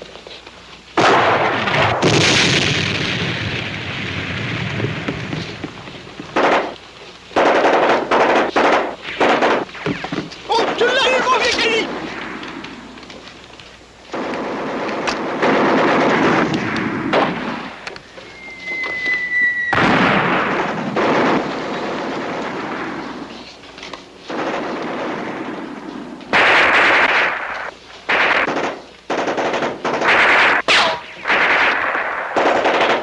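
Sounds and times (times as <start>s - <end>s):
machine-gun and rifle fire: 1.0s - 5.6s, 6.2s - 6.8s, 7.4s - 12.8s, 14.1s - 17.8s, 19.7s - 23.4s, 24.3s - 33.0s
short high whistle: 18.1s - 19.8s.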